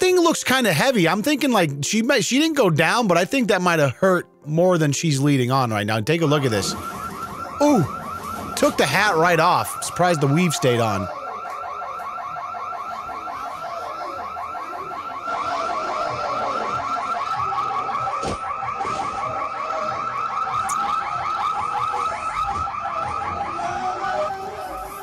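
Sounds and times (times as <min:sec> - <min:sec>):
electronic alarm warbling: 0:06.2 - 0:25.0.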